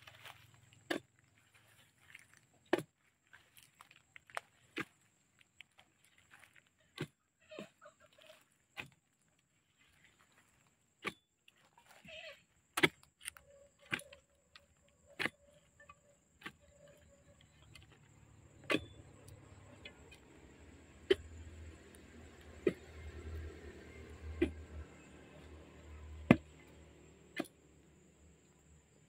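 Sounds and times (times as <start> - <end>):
scraping in soil: 0.0 - 29.0
machete chopping into roots: 26.2 - 26.6.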